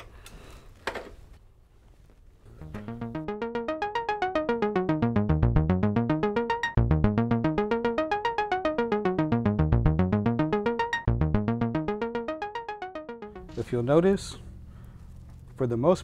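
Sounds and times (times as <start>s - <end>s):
rapid synthesizer arpeggio: 2.6s - 13.7s.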